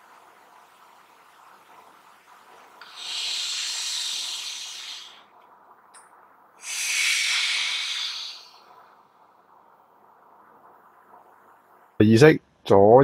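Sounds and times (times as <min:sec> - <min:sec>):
person breathing out hard: 0:06.6 - 0:08.7.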